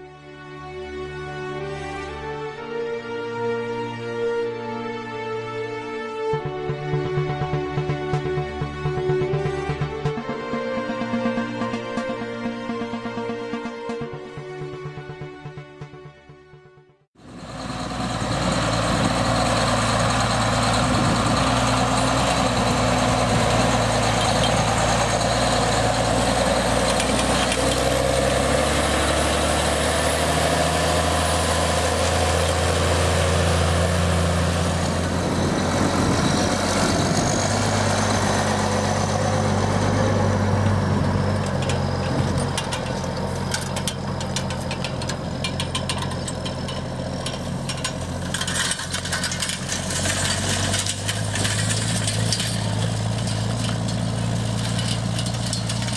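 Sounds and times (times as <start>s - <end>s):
tractor diesel engine under load: 17.2s - 55.9s
rapid clicking and rattling: 41.4s - 55.9s.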